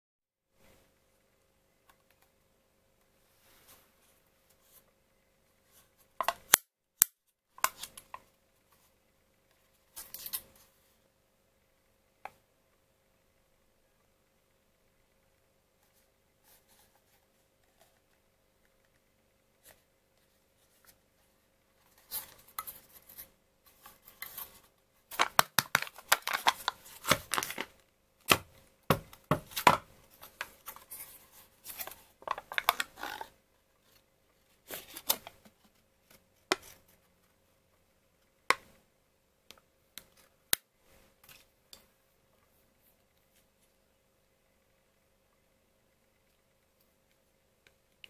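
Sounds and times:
foil lid crinkling and tearing: 25.1s - 27.7s.

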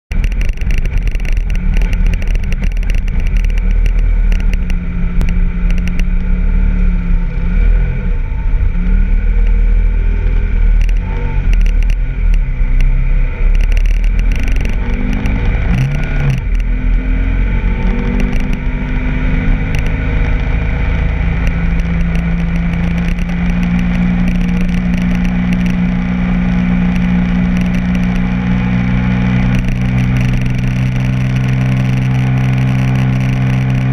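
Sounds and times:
clattering over rough ground: 0.1s - 6.2s, 19.6s - 25.9s
motorcycle engine running: 0.1s - 33.9s
wind rumbling on microphone: 0.1s - 33.9s.

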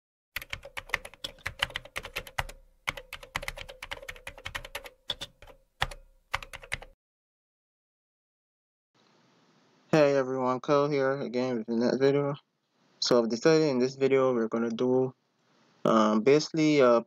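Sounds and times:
rapid typing on keyboard: 0.4s - 7.0s.

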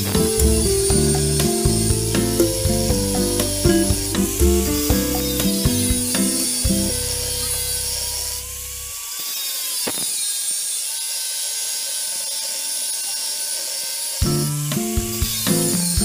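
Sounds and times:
angle grinder cutting steel: 4.2s - 16.0s.

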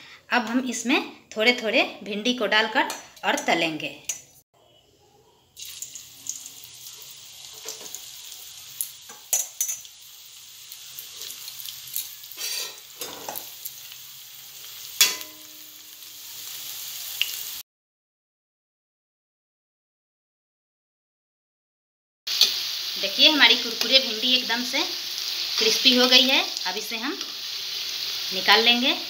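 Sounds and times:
deep-frying sizzle: 5.6s - 17.6s, 22.3s - 29.0s
metal spoon clinking against pan: 9.1s - 9.9s, 15.0s - 15.6s.

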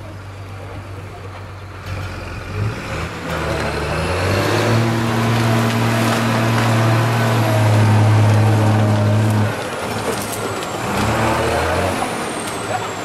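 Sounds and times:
diesel truck engine revving: 0.0s - 13.0s.

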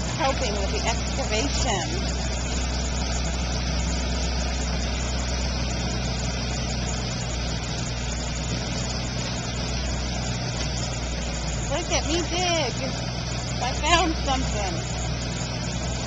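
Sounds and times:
low mechanical drone: 0.0s - 16.0s.

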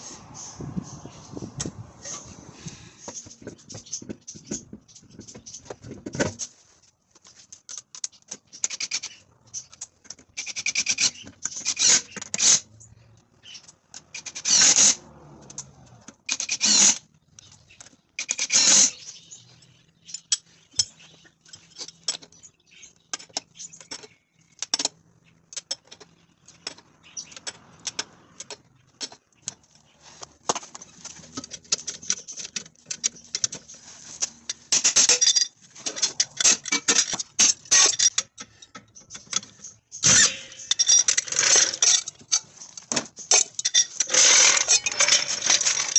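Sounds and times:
metallic clicks and clinks: 13.5s - 29.8s, 30.8s - 45.9s
loud rasping bursts: 14.2s - 15.1s.

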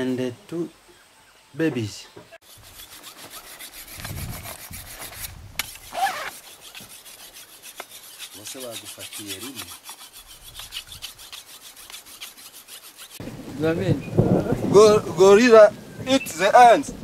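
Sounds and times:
scraping against stone: 2.4s - 13.2s.

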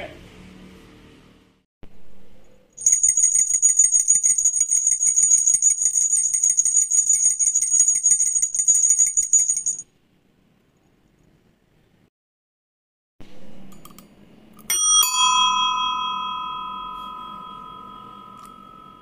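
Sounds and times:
rapid high jingling: 2.8s - 9.8s.

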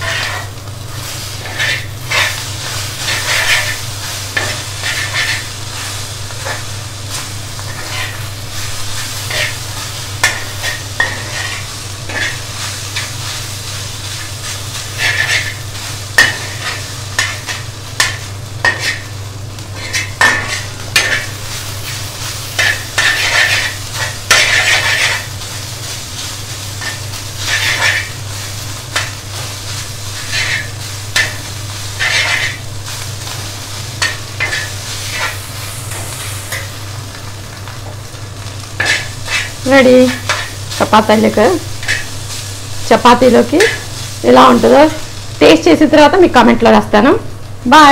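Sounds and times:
spatula scraping and clinking on pan: 0.0s - 0.5s, 1.4s - 5.5s, 7.6s - 8.3s, 10.2s - 13.2s, 14.8s - 19.1s, 19.8s - 21.4s, 22.6s - 25.4s, 26.8s - 28.2s, 30.1s - 32.7s, 34.0s - 36.7s, 38.8s - 40.6s, 41.8s - 42.2s, 43.4s - 43.9s
food sizzling in a pan: 0.0s - 47.9s.

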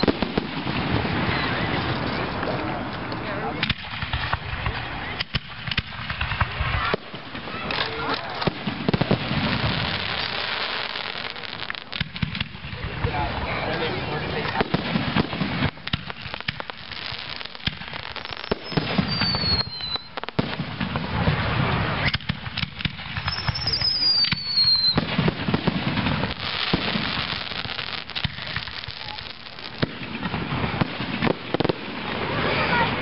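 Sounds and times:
firework whistles falling in pitch: 0.0s - 0.2s, 18.2s - 20.2s, 23.2s - 25.1s
fireworks bangs and crackling: 0.0s - 33.0s.

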